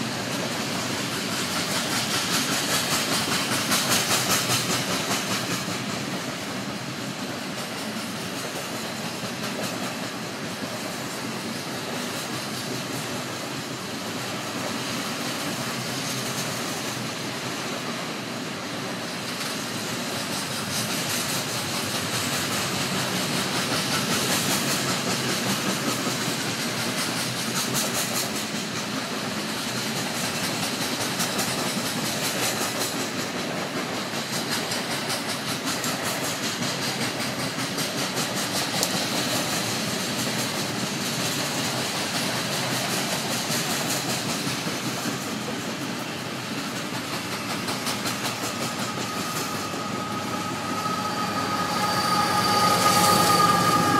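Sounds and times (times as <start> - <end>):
steel wheels rolling on rail: 0.0 - 53.9
high wheel squeal: 47.1 - 53.9.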